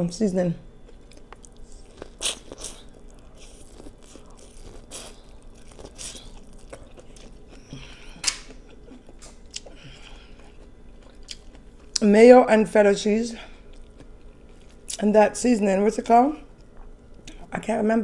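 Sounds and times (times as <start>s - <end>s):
chewing corn on the cob: 0.8s - 12.0s, 13.6s - 15.0s.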